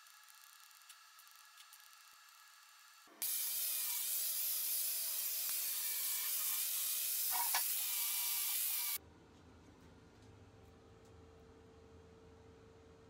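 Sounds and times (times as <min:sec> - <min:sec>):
angle grinder on steel: 0:03.2 - 0:09.0.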